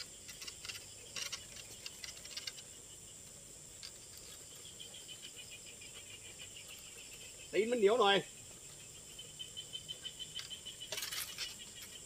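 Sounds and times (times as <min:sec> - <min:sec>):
high drone of night insects: 0:00.0 - 0:12.0
insect chirping: 0:00.0 - 0:12.0.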